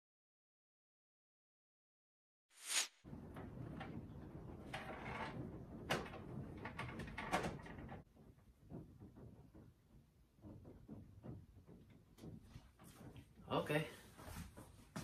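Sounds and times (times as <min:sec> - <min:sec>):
cables rustling and knocking: 0:03.1 - 0:15.0.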